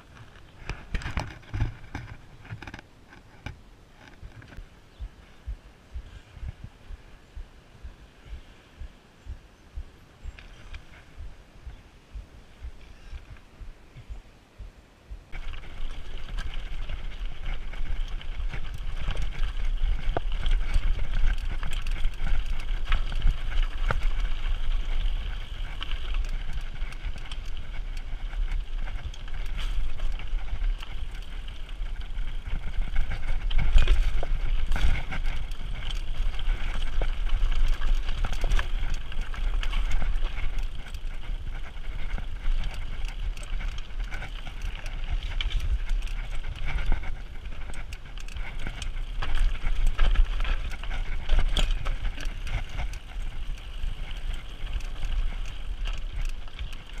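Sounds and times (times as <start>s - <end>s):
bike rattling and knocking: 0.0s - 5.2s, 15.3s - 57.0s
wind rumble on microphone: 0.0s - 57.0s
tyres crunching over gravel: 15.3s - 57.0s.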